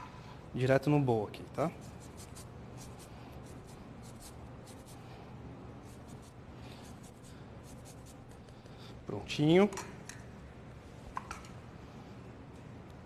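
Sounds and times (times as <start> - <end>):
zester rasping on lime rind: 1.8 - 5.0.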